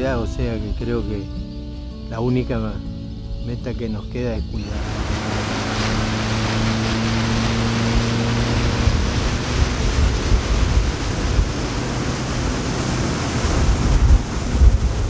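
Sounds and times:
wind buffeting microphone: 0:04.3 - 0:15.0
steady low hum: 0:04.5 - 0:15.0
water rushing: 0:04.6 - 0:15.0.

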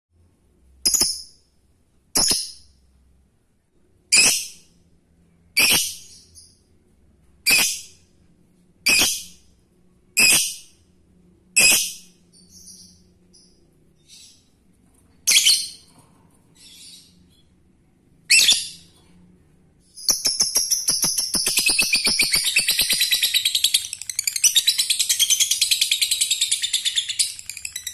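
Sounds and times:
lovebird high-pitched calls: 0:04.1 - 0:04.6, 0:05.6 - 0:06.5, 0:07.5 - 0:07.9, 0:08.9 - 0:09.4, 0:10.2 - 0:10.7, 0:15.3 - 0:15.8, 0:18.3 - 0:18.8, 0:20.0 - 0:27.9.

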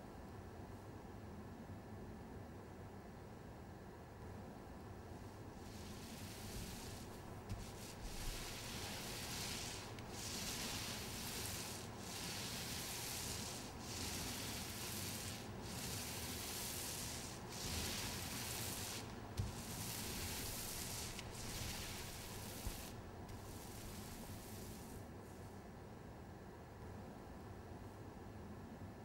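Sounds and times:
rubbing strokes on a surface: 0:05.6 - 0:25.5.

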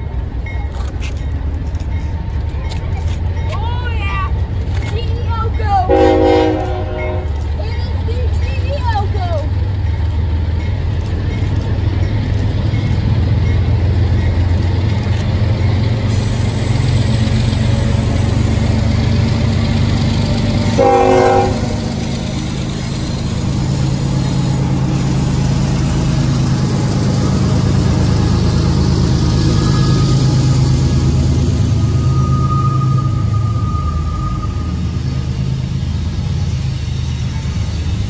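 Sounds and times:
train rumbling by: 0:00.0 - 0:38.0
locomotive horn blast: 0:05.9 - 0:07.4, 0:20.7 - 0:22.1.

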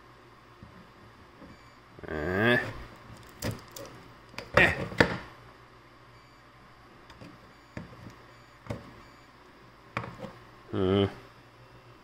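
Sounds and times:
pliers clicking and snipping wires: 0:03.2 - 0:04.5.

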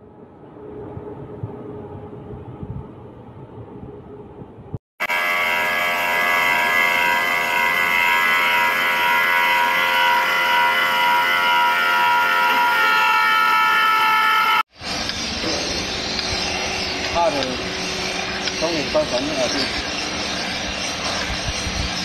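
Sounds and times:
grinding wheel shrill whine: 0:05.0 - 0:22.0.

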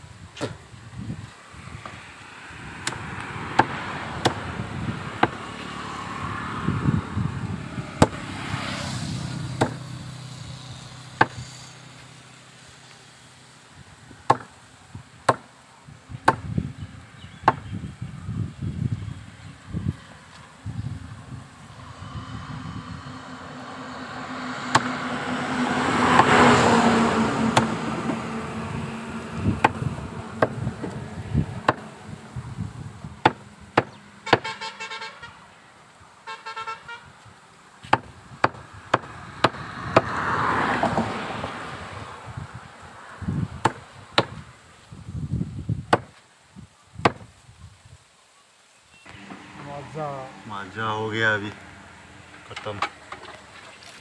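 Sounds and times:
vehicle passing: 0:01.0 - 0:13.3, 0:19.2 - 0:34.8, 0:37.9 - 0:44.5, 0:49.1 - 0:54.0
knife chopping meat on wood: 0:08.0 - 0:08.2, 0:09.6 - 0:09.8, 0:14.3 - 0:14.5, 0:24.7 - 0:24.9, 0:33.2 - 0:34.5, 0:37.9 - 0:40.2, 0:45.9 - 0:46.1
vehicle horn toots: 0:34.2 - 0:35.5, 0:36.2 - 0:37.1.

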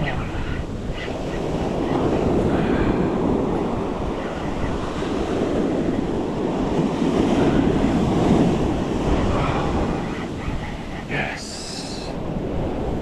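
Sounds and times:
ocean surf on beach: 0:00.0 - 0:13.0
wind buffeting microphone: 0:00.0 - 0:13.0.

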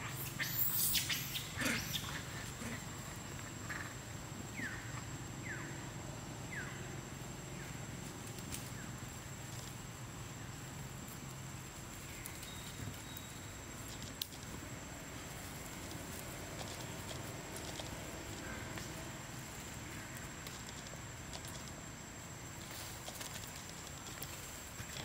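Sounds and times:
small animal chirping: 0:00.0 - 0:02.3.

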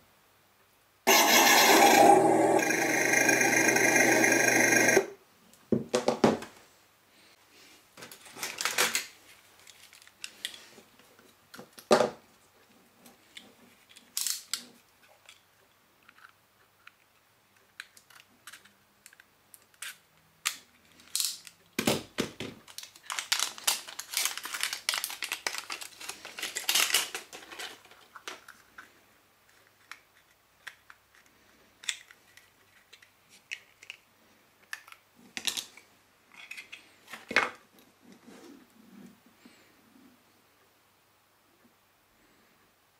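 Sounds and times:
crackling and rustling: 0:07.7 - 0:21.7, 0:22.3 - 0:39.2
plastic parts clicking: 0:16.0 - 0:21.6, 0:22.7 - 0:28.9, 0:29.5 - 0:34.0, 0:34.6 - 0:36.8.

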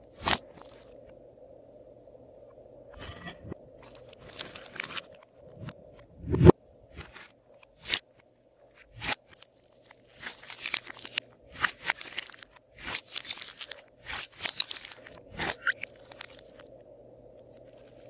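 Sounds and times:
slime crackling and popping: 0:00.1 - 0:01.0, 0:08.8 - 0:16.7.

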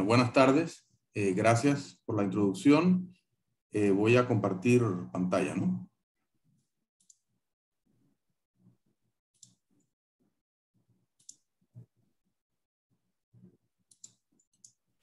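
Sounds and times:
computer mouse clicks: 0:07.0 - 0:07.2, 0:09.4 - 0:09.9, 0:11.2 - 0:11.5, 0:13.9 - 0:14.8.

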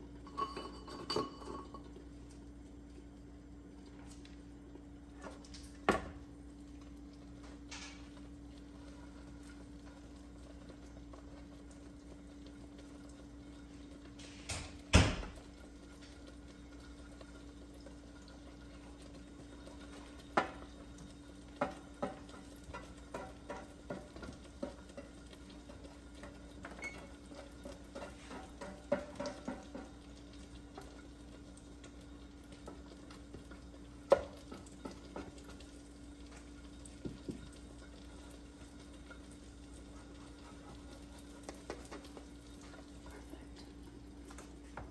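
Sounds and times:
glass lid clinking on pan: 0:00.3 - 0:01.8.

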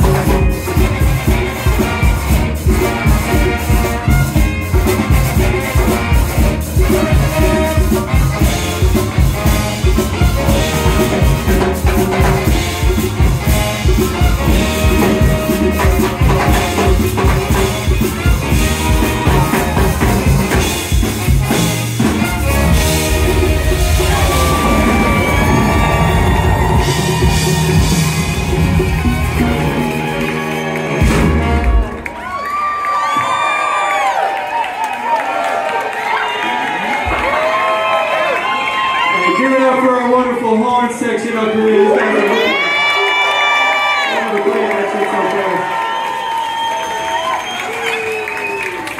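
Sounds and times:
drum kit beat: 0:00.0 - 0:32.0
trombone and saxophones: 0:00.0 - 0:32.2.

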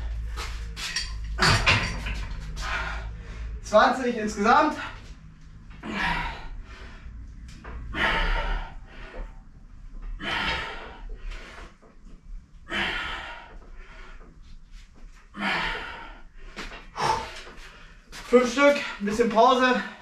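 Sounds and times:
man breathing hard: 0:02.4 - 0:03.6, 0:04.7 - 0:11.8, 0:12.6 - 0:14.6, 0:15.2 - 0:18.2.

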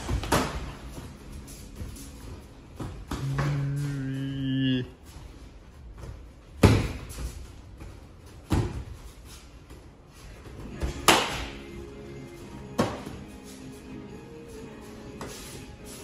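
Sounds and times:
faint background music: 0:00.0 - 0:16.0
kicks and punches smacking: 0:06.6 - 0:07.2.

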